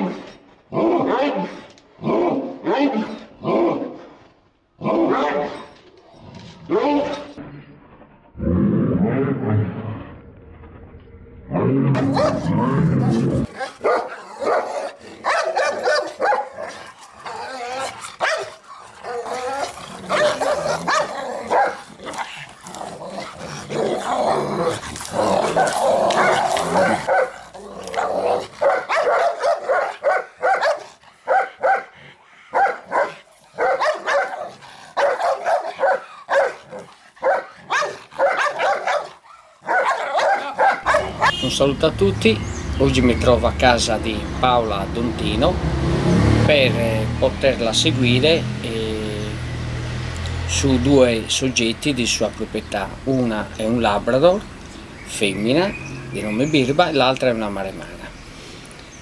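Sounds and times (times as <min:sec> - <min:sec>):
dogs growling: 0:11.3 - 0:41.3
dogs barking: 0:11.9 - 0:41.7.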